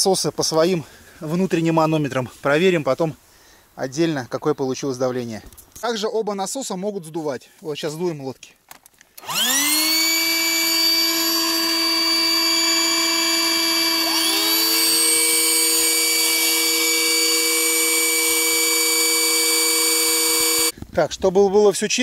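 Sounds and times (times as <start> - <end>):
electric pumps whining: 9.2 - 20.7.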